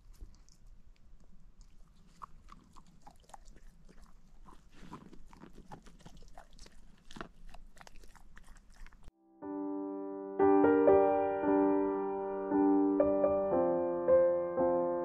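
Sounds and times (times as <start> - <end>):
dog crunching dry kibble: 0.0 - 9.1.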